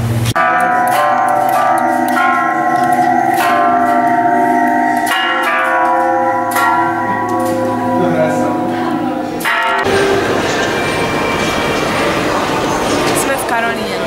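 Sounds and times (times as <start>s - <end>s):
bell-like chimes ringing: 0.4s - 14.0s.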